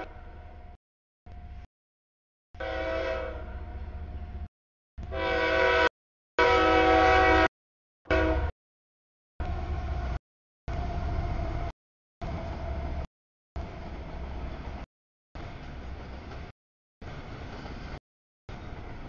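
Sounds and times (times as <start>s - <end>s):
locomotive air horn blasts: 2.6s - 3.8s, 5.0s - 7.5s, 8.1s - 8.5s
train rumble: 9.4s - 19.0s.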